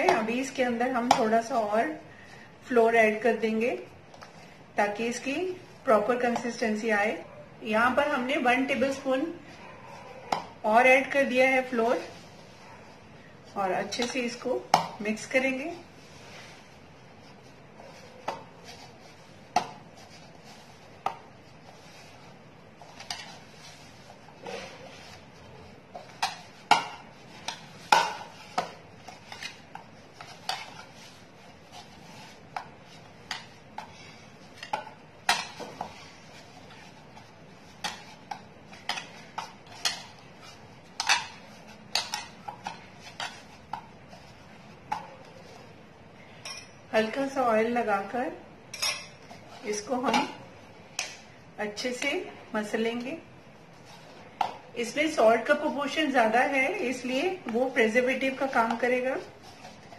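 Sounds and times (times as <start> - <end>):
dough pressing and rubbing: 10.2 - 46.1, 53.5 - 59.9.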